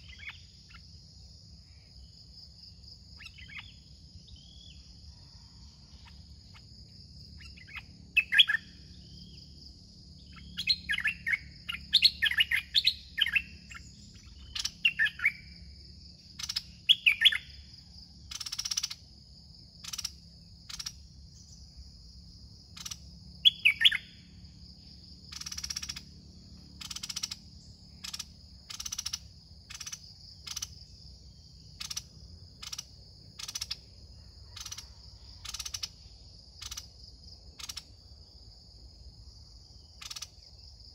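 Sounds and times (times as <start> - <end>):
birds singing: 0.0 - 0.9, 3.2 - 6.6, 7.3 - 15.7, 16.3 - 19.0, 22.8 - 26.2
high insect drone: 0.0 - 40.9.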